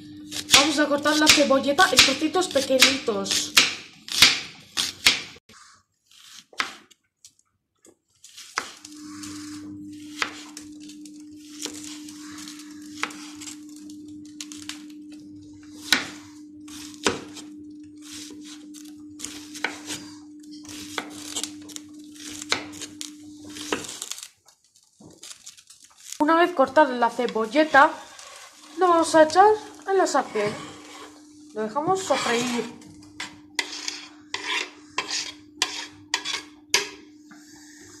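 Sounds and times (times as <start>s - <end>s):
steady low hum: 0.0s - 4.2s, 8.8s - 24.3s, 26.1s - 38.0s
knife chopping on cutting board: 0.4s - 5.4s, 6.2s - 6.9s, 17.0s - 17.4s.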